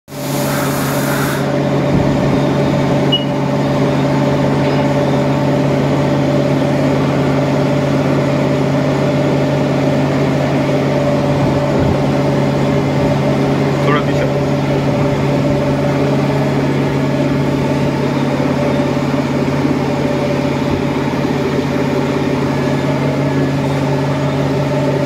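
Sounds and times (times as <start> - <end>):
milling machine humming: 0.1 - 25.0
short hiss: 0.2 - 1.5.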